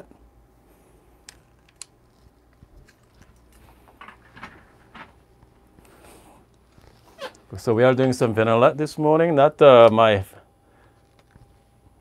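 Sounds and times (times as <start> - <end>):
soft handling sounds: 1.0 - 8.4.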